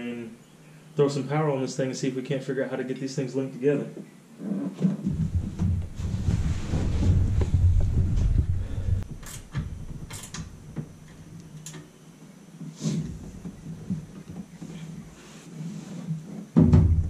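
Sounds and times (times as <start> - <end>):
low thuds in a boat: 5.0 - 9.0.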